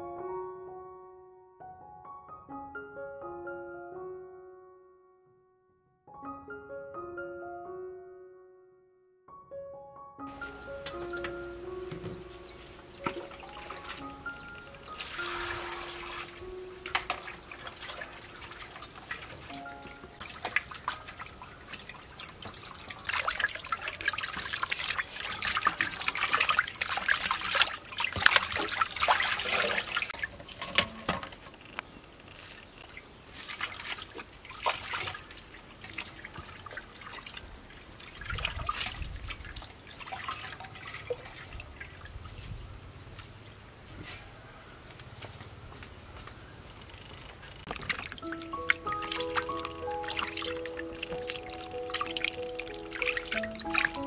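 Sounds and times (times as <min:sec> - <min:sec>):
water splashing in a metal bowl: 0:13.0 - 0:31.0, 0:32.8 - 0:42.2, 0:47.6 - 0:54.0
water pouring from a scoop: 0:14.9 - 0:30.8, 0:38.0 - 0:42.0, 0:47.6 - 0:54.0.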